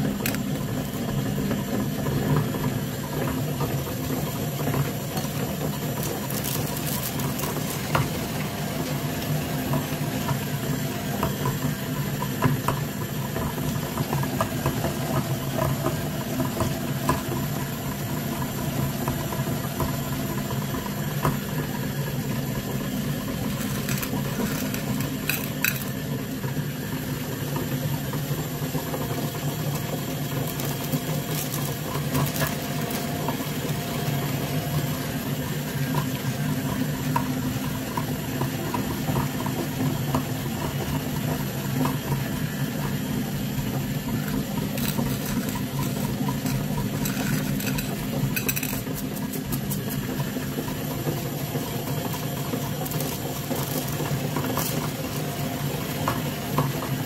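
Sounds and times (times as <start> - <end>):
meat grinder humming: 0.0 - 57.0
candies cracking and clicking: 0.1 - 0.5, 6.0 - 8.1, 23.3 - 26.0, 44.3 - 50.0
candies clinking on metal pan: 23.5 - 26.0, 44.7 - 49.1.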